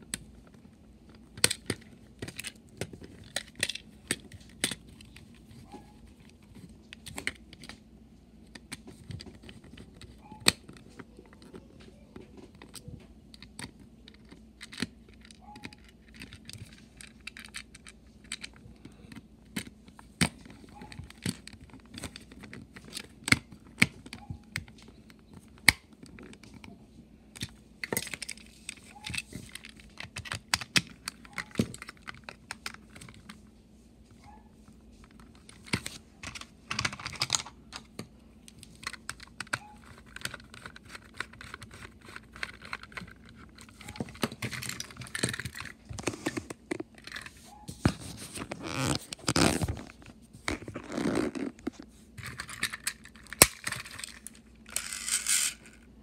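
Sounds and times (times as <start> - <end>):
plastic toy parts clicking: 1.2 - 4.8, 12.6 - 24.8, 35.5 - 45.8.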